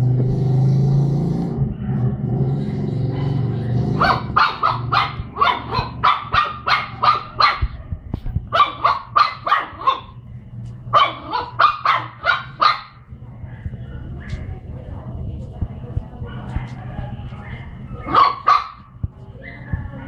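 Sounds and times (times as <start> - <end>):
puppy barking: 3.0 - 10.2, 10.9 - 14.6, 16.2 - 20.0.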